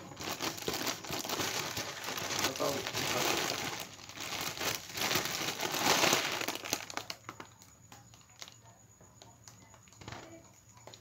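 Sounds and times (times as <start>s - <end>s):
foil balloon crinkling: 0.0s - 8.6s.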